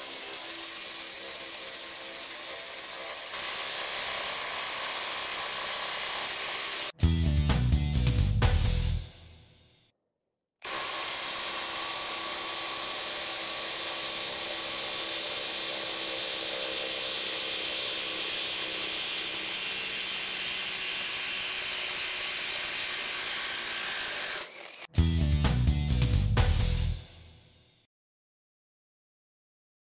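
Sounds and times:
impact driver hammering screw: 10.6 - 24.9.

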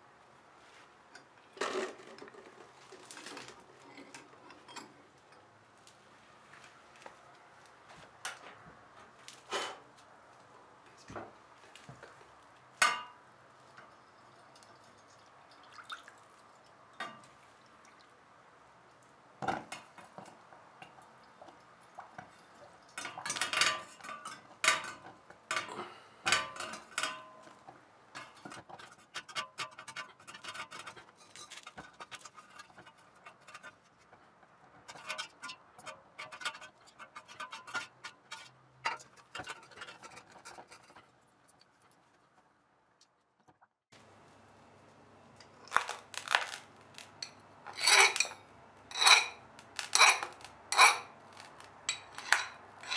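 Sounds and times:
metal tools clinking: 47.2 - 52.9
metal parts clattering: 47.7 - 52.9.

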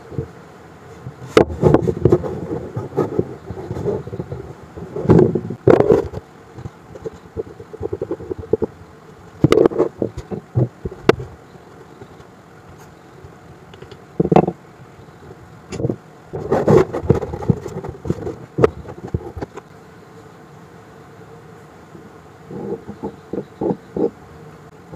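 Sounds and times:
wooden blocks knocking on table: 14.2 - 14.6.

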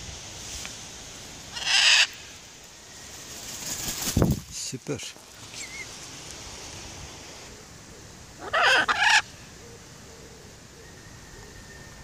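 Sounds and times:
macaw squawk: 1.5 - 2.2, 8.4 - 9.4.

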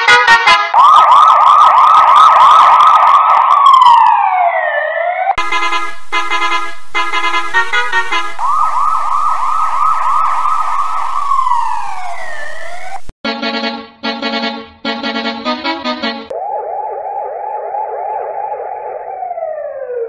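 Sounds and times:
bus horn blasts: 0.0 - 0.8, 5.4 - 8.4, 13.2 - 16.3
police siren yelp: 0.0 - 13.1, 15.0 - 20.0.

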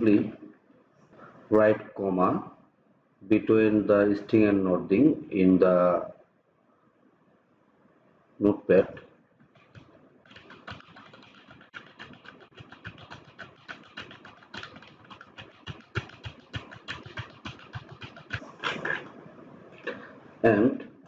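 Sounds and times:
keyboard keys clicking: 9.6 - 19.1.

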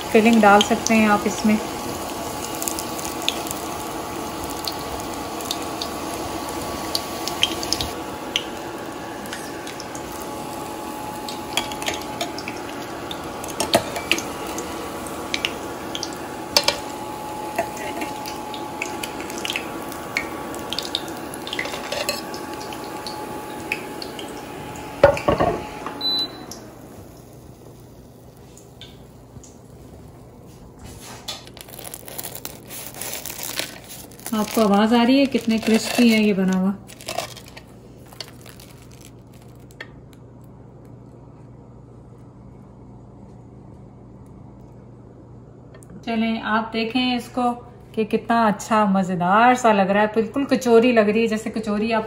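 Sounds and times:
bread rolls sizzling in oil: 0.0 - 39.8.

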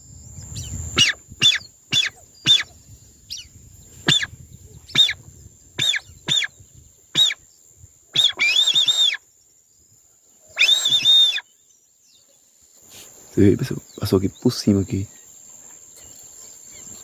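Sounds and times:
high insect buzz: 0.0 - 17.0
duck call whistles: 1.0 - 2.7, 4.0 - 4.3, 4.9 - 5.2, 5.8 - 6.5, 7.2 - 7.4, 8.2 - 9.2, 10.6 - 11.5.

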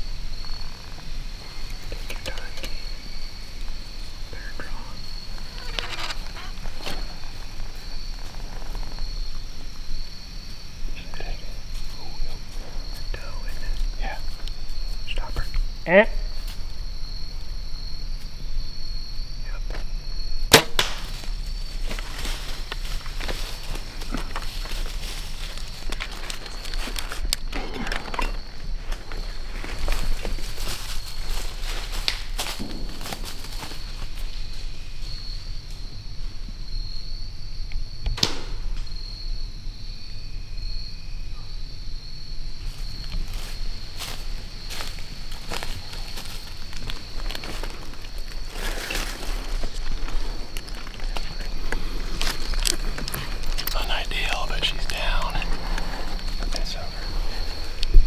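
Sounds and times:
high insect drone: 0.0 - 58.0
bow firing crack: 20.4 - 21.4, 38.0 - 39.0.

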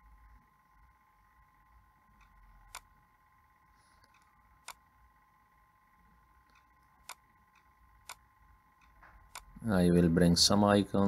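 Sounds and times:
faint electrical whine: 0.0 - 11.0
computer mouse clicks: 2.1 - 2.9, 4.0 - 4.9, 6.4 - 8.2, 8.8 - 9.6
soft clicks: 2.1 - 2.9, 4.0 - 4.8, 6.4 - 8.2, 8.8 - 9.6.

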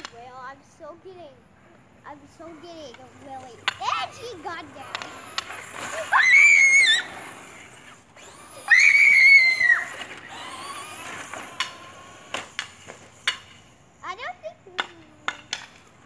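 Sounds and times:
child screaming: 5.8 - 7.3, 8.4 - 10.1
sharp clicks and knocks: 10.0 - 13.7, 14.8 - 16.0.

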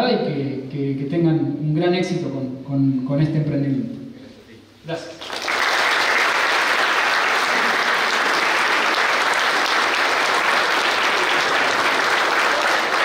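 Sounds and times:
crowd applauding: 5.2 - 13.0.

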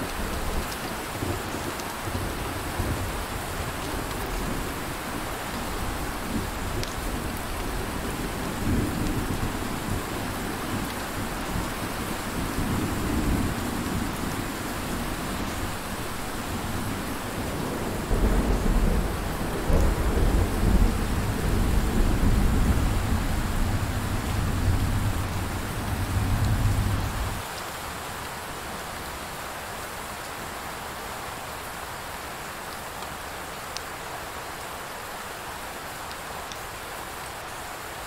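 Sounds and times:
steady rain: 0.0 - 38.0
thunder rumbling: 12.4 - 27.4.

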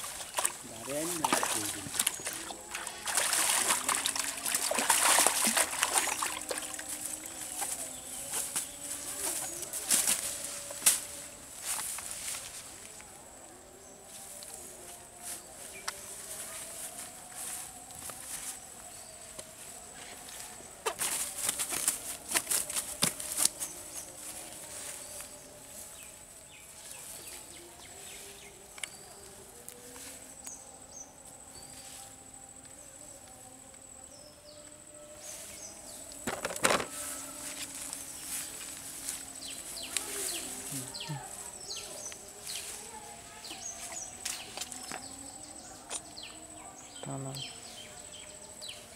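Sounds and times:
fish slapping on grass: 0.0 - 11.1, 20.8 - 23.8
high-pitched insect drone: 0.0 - 13.5, 16.1 - 48.9.

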